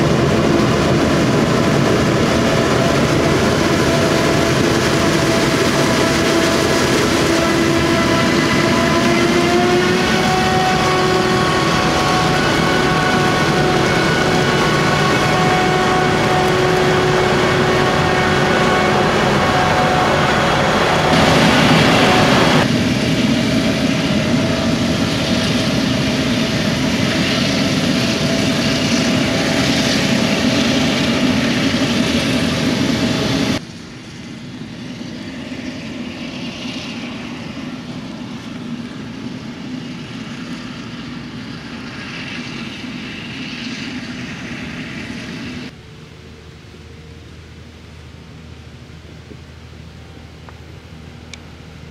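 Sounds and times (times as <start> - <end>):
forage harvester running: 0.0 - 34.0
distant farm machinery: 0.0 - 51.9.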